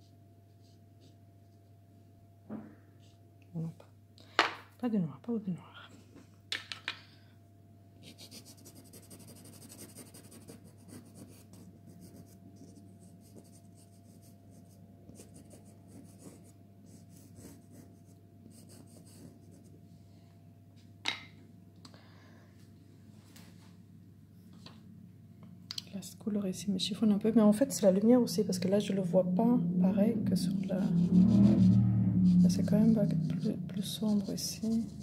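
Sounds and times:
pencil scratching on card: 8.0 - 19.7, 33.9 - 35.0.

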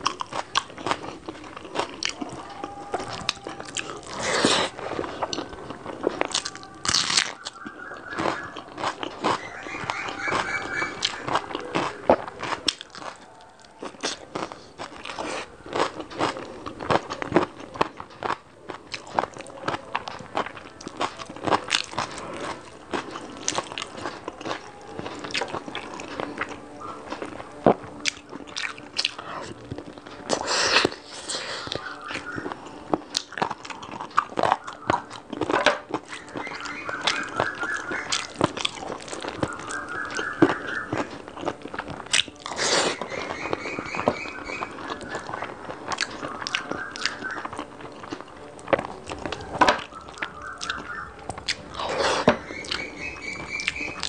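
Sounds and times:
chewing and biting food: 0.0 - 54.0.

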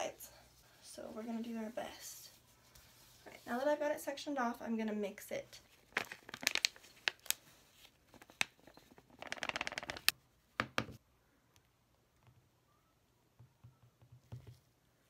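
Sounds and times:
plastic bag crinkling: 5.7 - 10.1.

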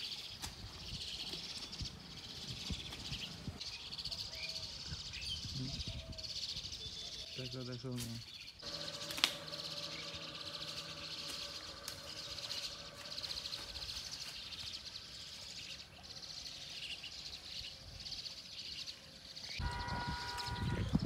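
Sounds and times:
rural outdoor background: 0.0 - 21.0
insects trilling: 8.5 - 17.4
low rumble: 8.6 - 15.4.

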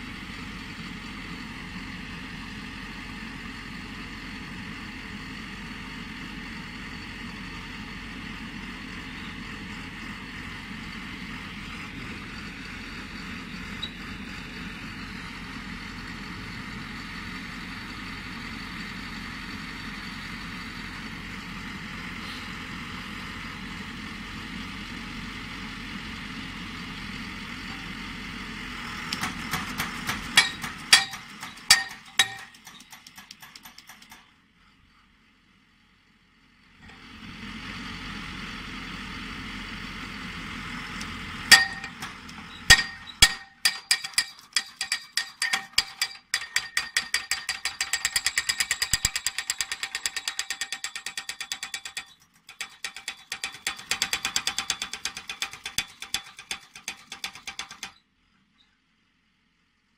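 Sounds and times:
pile driver engine running: 0.0 - 58.0
hammer clanging on steel pile: 29.2 - 34.3, 41.5 - 58.0.

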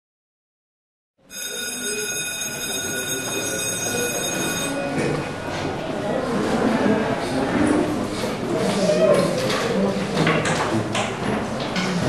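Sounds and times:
school bell ringing: 1.3 - 5.1
students chattering: 1.3 - 10.5.

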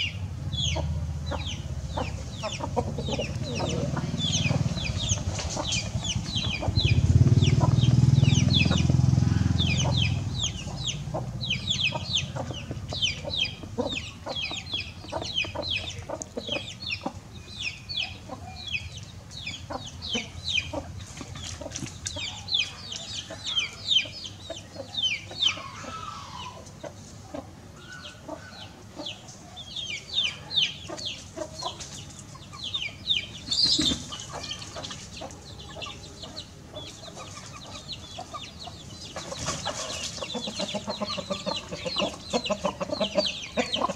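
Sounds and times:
chickens clucking softly: 0.6 - 43.9
loud low rumble: 3.3 - 12.2.

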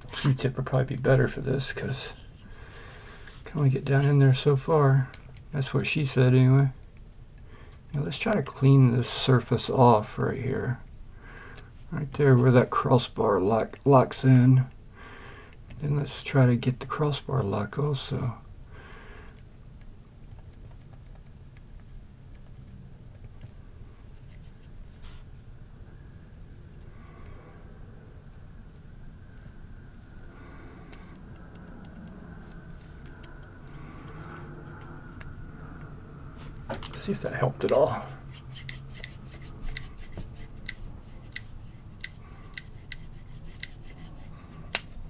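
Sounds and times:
cotton swab scratching metal: 37.1 - 45.0.

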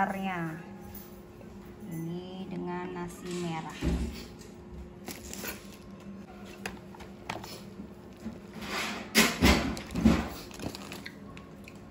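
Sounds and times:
low steady hum: 0.0 - 11.9
plastic wrapping rustling: 5.0 - 8.6, 9.7 - 11.4.

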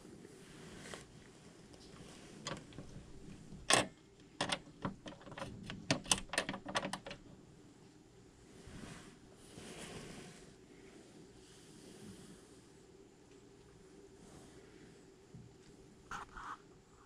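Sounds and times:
claws clicking on plastic bowls: 2.5 - 7.3.

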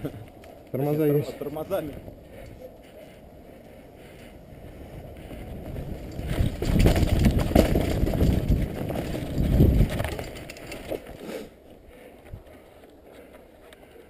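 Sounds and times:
wind buffeting microphone: 0.0 - 11.2
bike rattling on dirt trail: 4.1 - 13.3.

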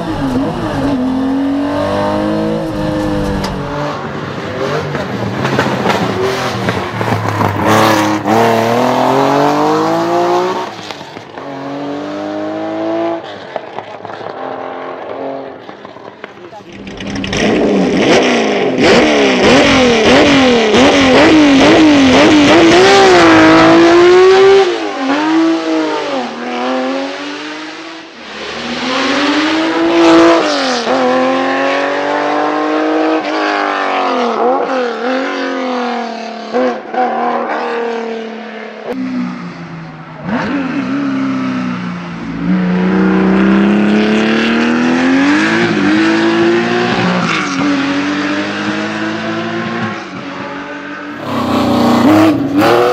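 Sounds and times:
car accelerating hard: 0.0 - 39.5, 40.2 - 52.9
rally car engine revving: 0.0 - 52.9.

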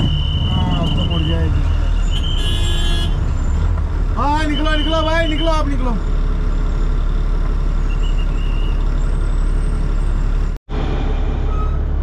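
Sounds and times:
diesel truck engine rumbling: 0.0 - 12.0.

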